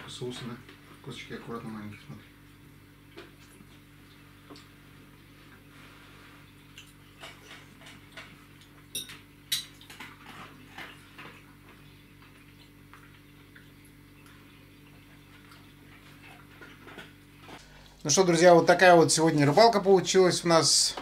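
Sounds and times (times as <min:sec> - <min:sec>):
cutlery clinking on plates: 0:07.2 - 0:10.5.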